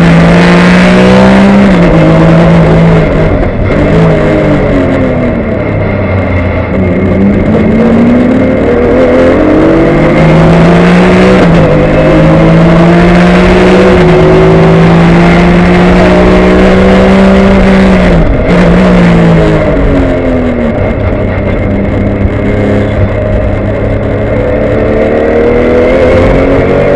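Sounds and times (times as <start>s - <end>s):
race car engine at full throttle: 0.0s - 26.9s.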